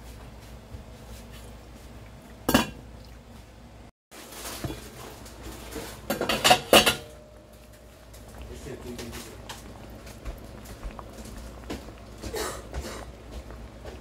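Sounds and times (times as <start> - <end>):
pot lid knocking and clinking: 6.1 - 7.1.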